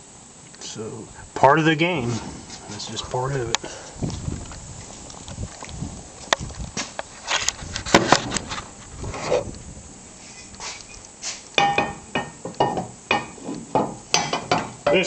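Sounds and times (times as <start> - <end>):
rubbing and scraping: 6.6 - 9.6, 10.2 - 11.5.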